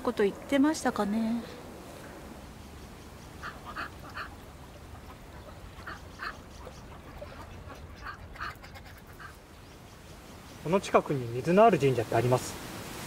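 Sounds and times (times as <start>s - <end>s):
ducks quacking: 3.1s - 10.6s.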